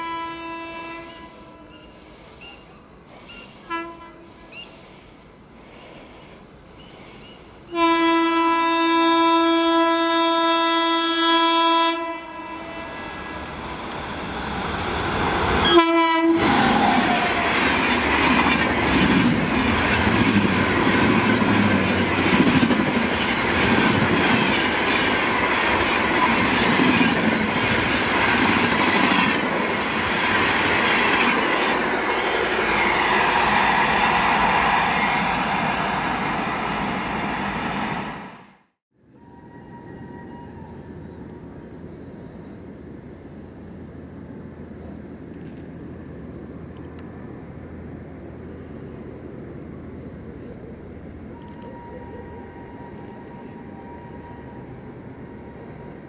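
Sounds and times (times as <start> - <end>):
train horn: 0.0 - 2.0, 3.6 - 4.6, 7.7 - 13.4, 15.6 - 17.8, 39.1 - 41.0, 51.7 - 54.7
train rushing past: 11.5 - 43.0.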